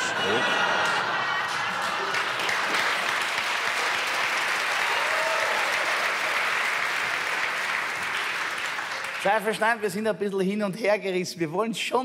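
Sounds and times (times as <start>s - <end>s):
audience applauding: 0.0s - 9.8s.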